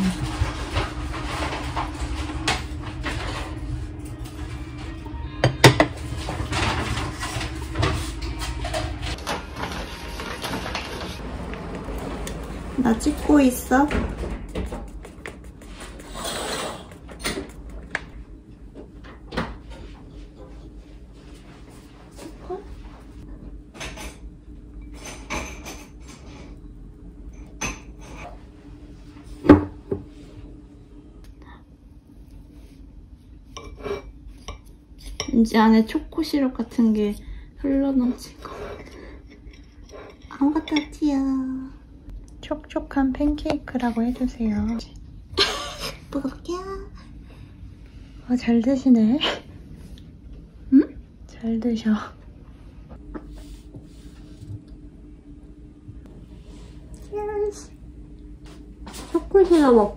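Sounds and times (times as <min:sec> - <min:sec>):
steady low hum: 0:00.0 - 0:59.9
dishes clinking and knocking: 0:04.2 - 0:11.0, 0:23.7 - 0:26.3.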